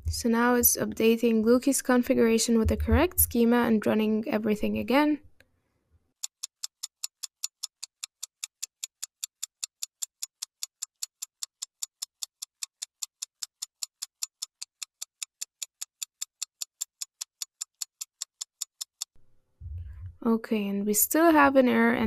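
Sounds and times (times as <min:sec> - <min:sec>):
clock-like ticking: 0:06.2 - 0:19.1.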